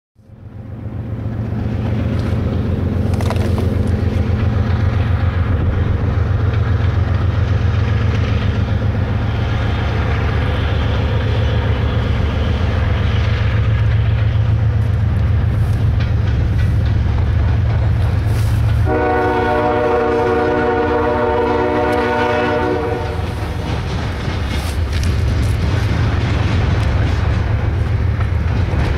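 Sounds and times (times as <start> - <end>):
diesel locomotive engines rumbling: 0.2 - 28.9
locomotive air horn blast: 18.4 - 23.5.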